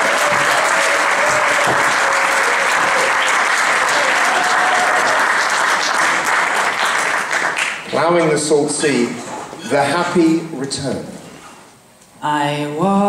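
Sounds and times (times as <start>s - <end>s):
audience applauding: 0.0s - 8.2s.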